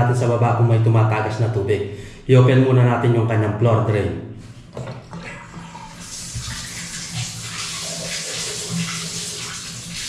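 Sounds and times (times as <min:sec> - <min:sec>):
water gushing down bathtub drain: 0:05.0 - 0:10.0.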